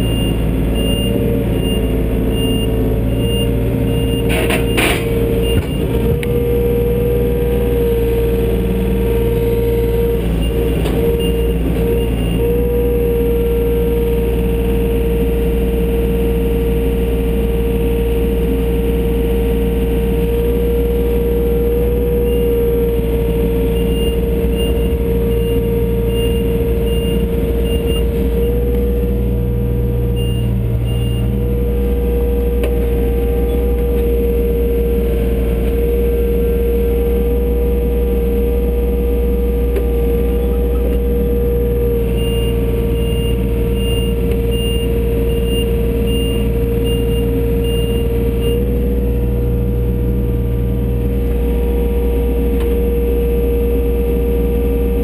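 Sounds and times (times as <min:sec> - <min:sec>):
diesel engine running under load: 0:00.0 - 0:55.0
steady engine whine: 0:00.0 - 0:55.0
high-pitched alarm beeps: 0:23.7 - 0:28.1, 0:30.2 - 0:31.3, 0:42.2 - 0:48.6.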